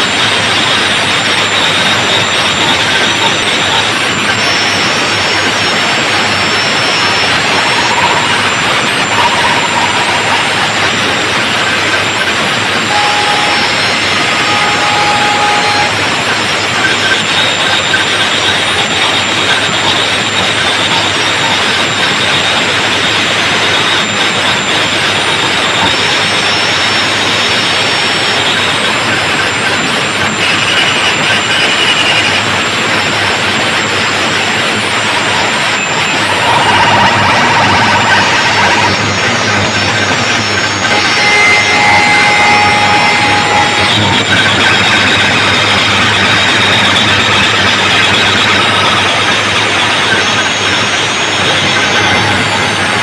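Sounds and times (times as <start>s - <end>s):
distorted loud music roar: 0.0s - 53.0s.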